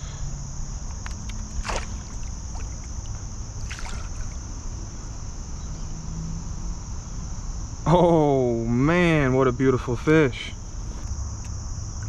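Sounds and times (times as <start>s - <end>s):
low rumble of moving water: 0.6s - 5.7s
fish splashing at water surface: 1.0s - 4.5s.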